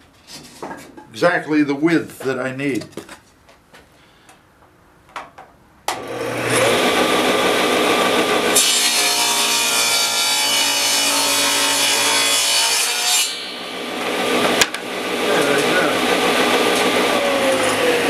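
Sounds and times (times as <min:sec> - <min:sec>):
table saw running: 0:05.9 - 0:18.0
saw blade cutting wood: 0:08.5 - 0:18.0.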